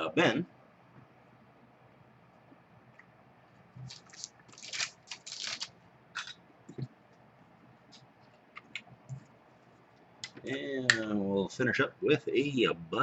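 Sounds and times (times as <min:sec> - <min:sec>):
cards and wrapping crinkling: 0:03.8 - 0:05.8.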